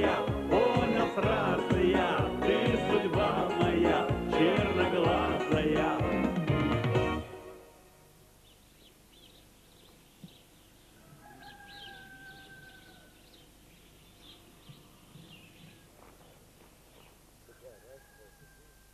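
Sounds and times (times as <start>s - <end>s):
faint birdsong chirps: 8.2s - 18.9s
long level bird call: 8.4s - 18.9s.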